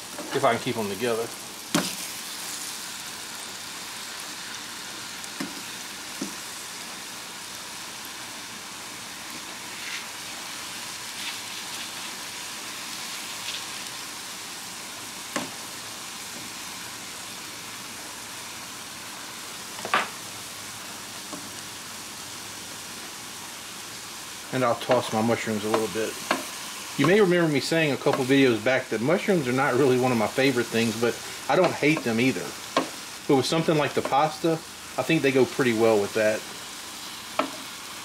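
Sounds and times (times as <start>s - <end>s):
onions sizzling on a griddle: 0.0s - 38.0s.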